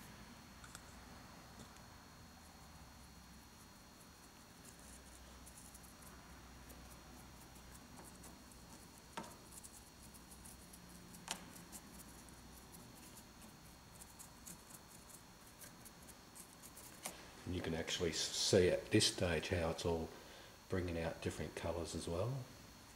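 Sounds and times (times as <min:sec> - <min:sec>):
paintbrush scratching on rock: 0:03.6 - 0:17.1.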